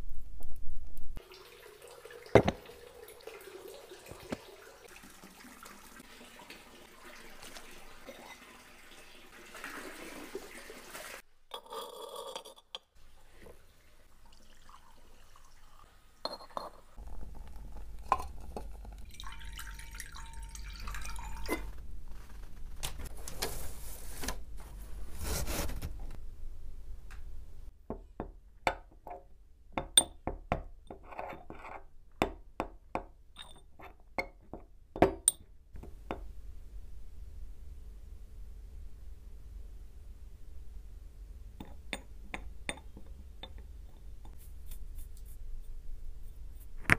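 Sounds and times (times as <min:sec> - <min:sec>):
water pouring into a dish: 0:01.2 - 0:11.2, 0:13.8 - 0:16.2, 0:17.0 - 0:21.8.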